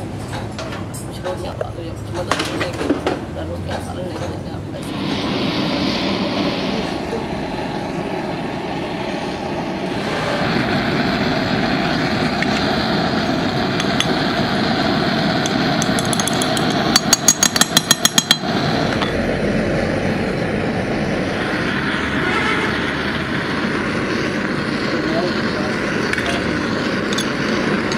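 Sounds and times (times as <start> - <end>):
workshop mechanical drone: 0.0 - 27.9
sharp metallic taps: 15.5 - 18.5.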